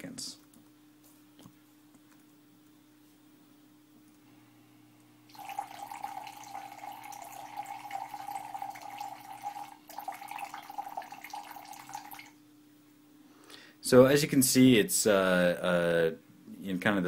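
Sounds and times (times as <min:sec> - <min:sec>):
liquid pouring into plastic tub: 0:05.3 - 0:12.4.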